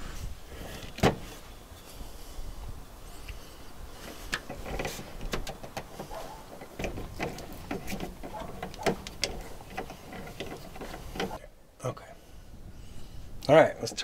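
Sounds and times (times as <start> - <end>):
plastic hose clicking and rubbing: 4.0 - 11.4.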